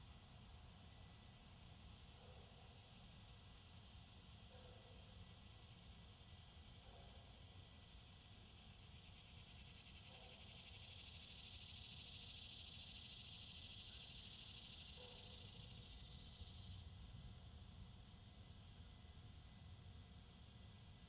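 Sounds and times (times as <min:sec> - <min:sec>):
insects buzzing: 0:00.2 - 0:21.0.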